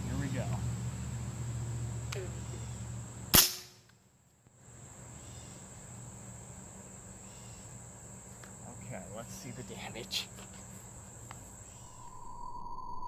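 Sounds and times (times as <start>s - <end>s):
crickets chirping: 0.0s - 13.0s
air rifle shot: 3.3s - 3.8s.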